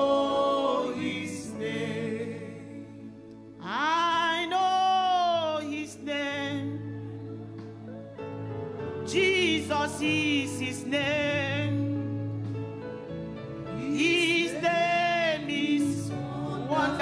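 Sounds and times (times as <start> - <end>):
keyboard chords: 0.0 - 17.0
woman singing gospel song: 3.6 - 7.6, 9.0 - 12.4, 13.7 - 17.0.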